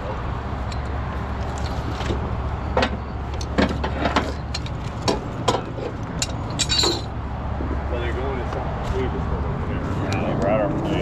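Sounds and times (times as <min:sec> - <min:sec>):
engine droning: 0:00.0 - 0:11.0
metal clinks of tow chain: 0:06.2 - 0:07.1.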